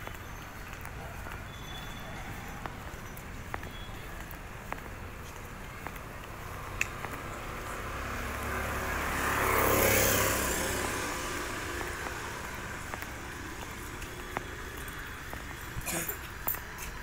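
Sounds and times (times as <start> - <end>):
motor scooter passing: 5.6 - 17.0.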